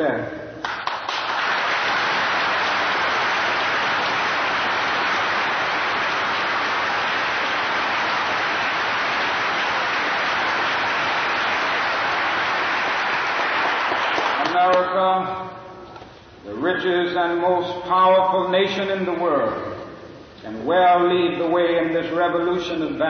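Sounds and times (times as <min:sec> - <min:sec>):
large audience applauding: 0:00.6 - 0:14.8.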